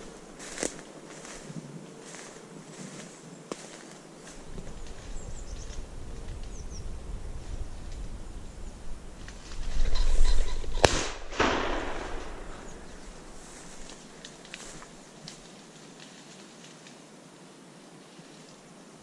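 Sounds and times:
footsteps in dry undergrowth: 0.0 - 8.2, 11.6 - 16.9
shotgun shot: 10.8 - 13.2
rolling echo: 10.8 - 14.2.

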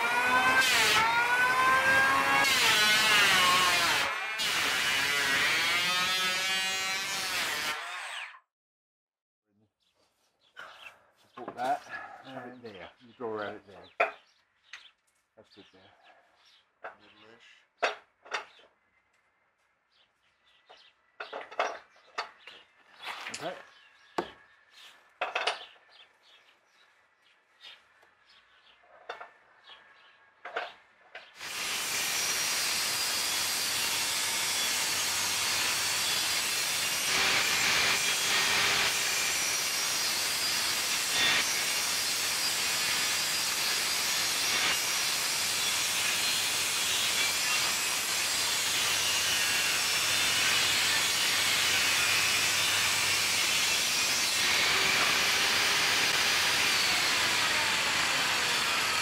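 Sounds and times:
table saw cutting wood: 0.0 - 8.5, 31.4 - 59.0.

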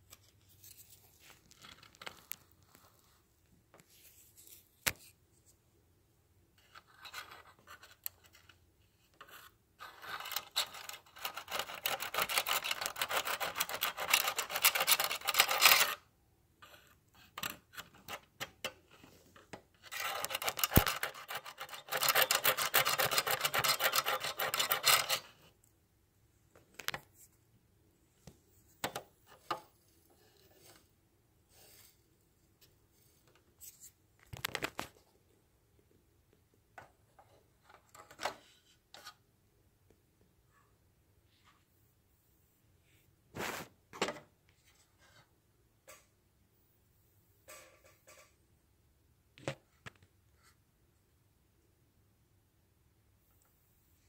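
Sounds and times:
emery board rasping on metal: 19.9 - 25.3.

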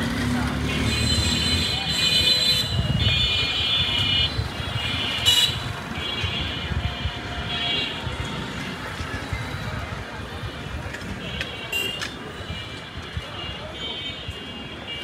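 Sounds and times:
traffic rumble: 0.0 - 15.0.

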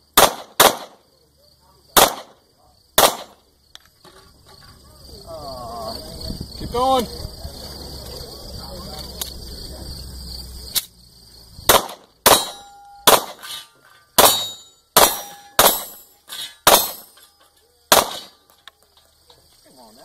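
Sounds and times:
pistol shots: 0.2 - 1.0, 2.0 - 2.4, 3.0 - 3.4, 11.7 - 13.6, 14.2 - 16.0, 16.6 - 17.1, 17.9 - 18.4
steel targets clanging: 11.7 - 19.1.

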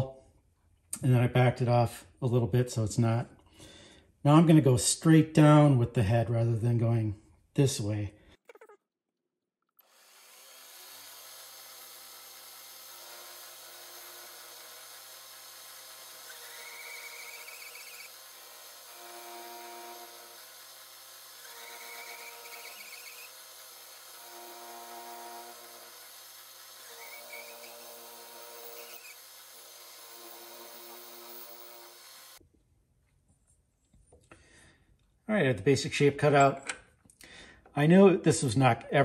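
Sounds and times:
end mill cutting aluminum: 9.8 - 32.4
cutter squeal: 16.3 - 18.2, 21.4 - 23.4, 26.8 - 32.4.

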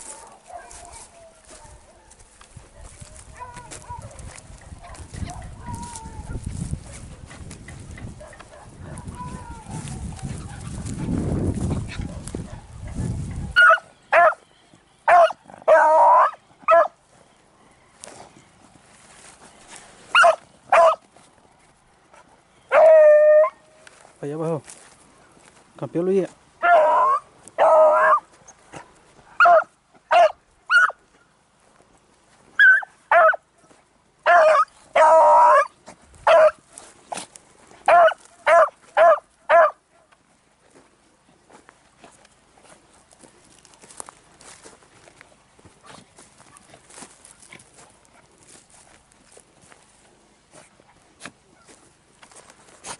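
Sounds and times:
dogs barking and baying: 0.0 - 14.4, 15.0 - 17.0, 20.1 - 21.1, 22.1 - 23.7, 26.6 - 28.3, 29.3 - 31.0, 32.6 - 33.4, 34.2 - 36.7, 37.8 - 40.1
low rumble on the microphone: 1.5 - 13.6.

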